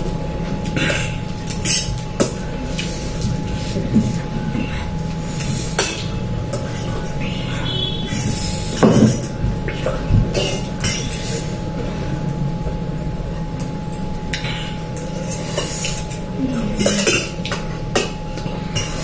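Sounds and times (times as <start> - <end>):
cutlery clinking on metal plates: 0.7 - 2.9, 8.8 - 11.5, 14.4 - 19.0.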